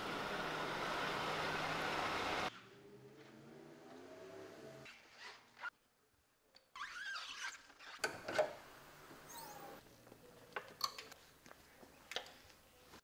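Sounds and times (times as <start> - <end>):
squeaky rubbing: 6.8 - 8.1.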